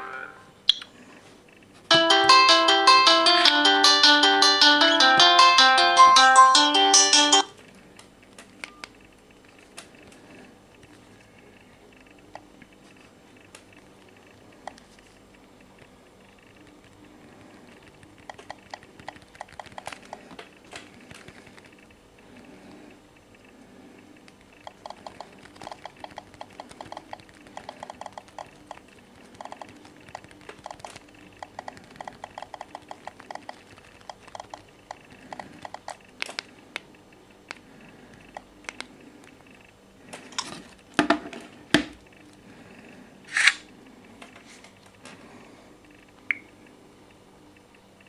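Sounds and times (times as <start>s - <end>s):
fingers tapping touchscreens: 15.7s - 21.9s, 24.2s - 39.5s.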